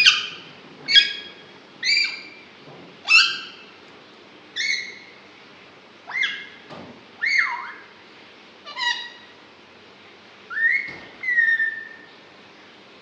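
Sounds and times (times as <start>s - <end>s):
parakeet whistling: 0.0s - 2.4s, 4.6s - 5.1s, 6.1s - 6.5s, 10.5s - 12.1s.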